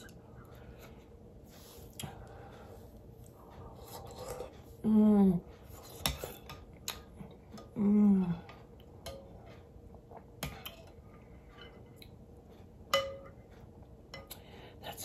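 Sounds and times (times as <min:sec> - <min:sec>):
person humming mmm: 0:07.6 - 0:08.6
metal spoon clinking on glass bowl: 0:12.9 - 0:13.4.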